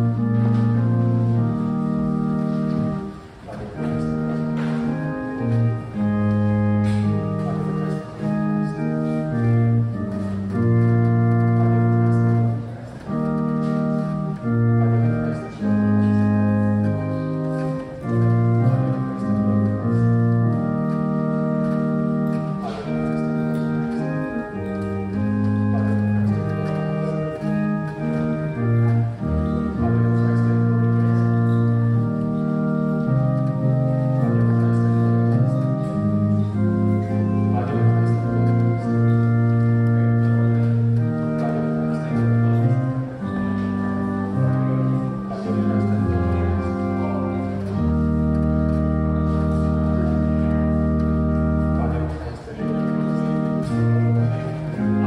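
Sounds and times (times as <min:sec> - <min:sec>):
organ playing sustained chords: 0:00.0 - 0:55.0.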